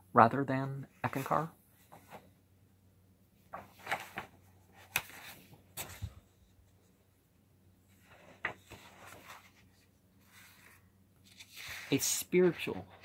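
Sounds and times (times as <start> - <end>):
paper pages rustling: 1.1 - 2.3, 3.5 - 6.9, 7.9 - 13.0.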